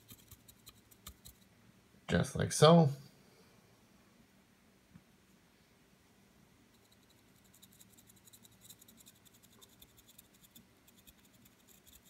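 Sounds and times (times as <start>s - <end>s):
dry brush bristles scratching: 0.0s - 1.4s, 6.8s - 12.0s.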